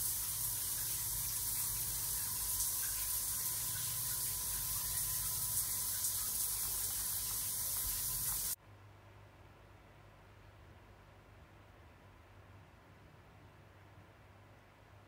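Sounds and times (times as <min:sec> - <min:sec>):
shower head spraying water: 0:00.0 - 0:08.6.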